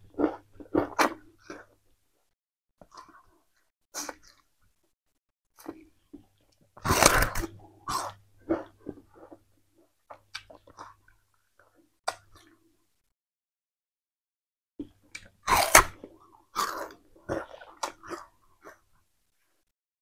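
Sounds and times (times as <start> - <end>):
person chewing sugarcane: 15.1 - 18.8.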